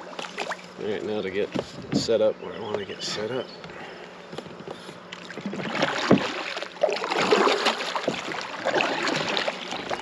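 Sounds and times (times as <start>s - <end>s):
kayak paddle splashing: 4.8s - 10.0s.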